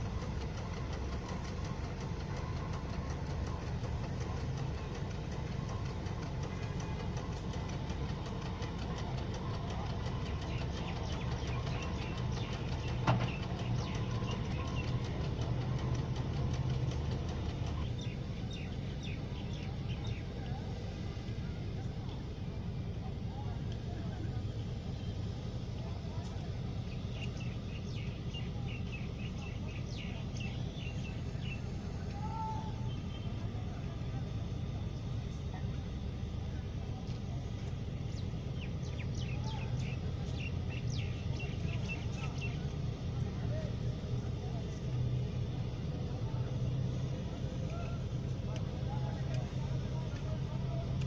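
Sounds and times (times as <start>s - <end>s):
crane engine throbbing: 0.0s - 51.0s
bird chirping: 38.1s - 42.6s.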